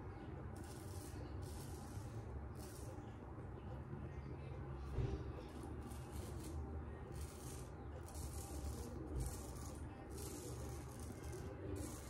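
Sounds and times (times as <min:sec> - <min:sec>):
straight razor scraping stubble: 0:05.8 - 0:12.0.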